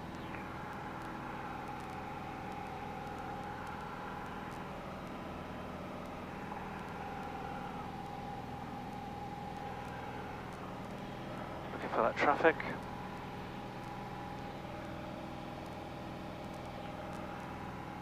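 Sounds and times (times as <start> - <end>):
propeller plane engine drone: 0.0 - 18.0.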